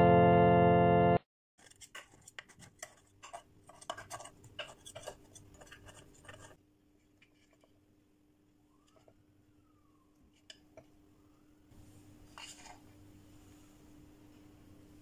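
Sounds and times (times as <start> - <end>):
knife scraping metal muffin tin: 1.6 - 6.6.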